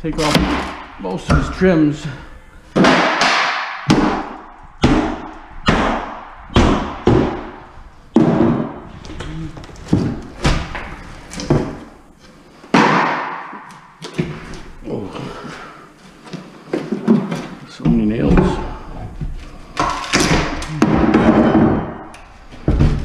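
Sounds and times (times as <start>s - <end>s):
heavy knocks on wooden cabinet: 2.8s - 7.6s.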